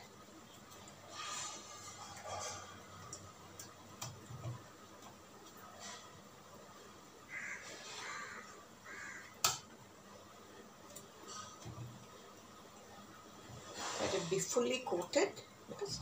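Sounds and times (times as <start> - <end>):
crow cawing: 7.3 - 9.6.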